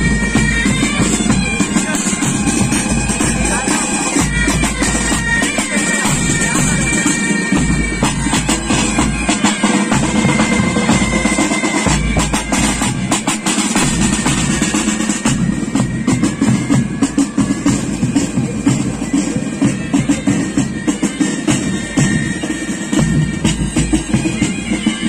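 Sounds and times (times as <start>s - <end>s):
bagpipes melody with drones: 0.0s - 25.0s
rapid snare drum strokes: 0.0s - 25.0s
booming bass drum beat: 6.1s - 22.2s.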